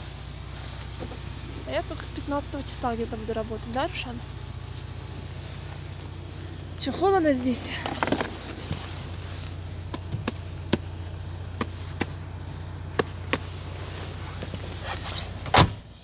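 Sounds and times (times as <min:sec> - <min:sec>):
car engine idling: 0:00.0 - 0:16.0
car door slamming: 0:15.4 - 0:15.9.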